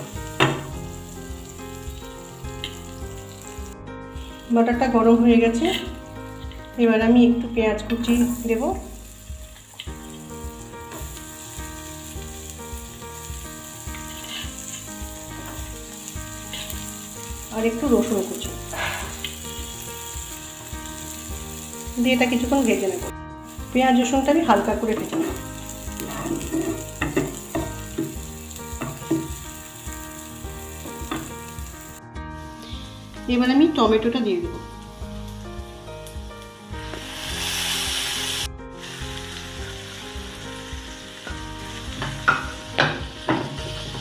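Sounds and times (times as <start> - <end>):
onion sizzling in frying pan: 0.0 - 44.0
soft background music: 0.0 - 44.0
wooden spatula scraping a pan: 26.0 - 26.9.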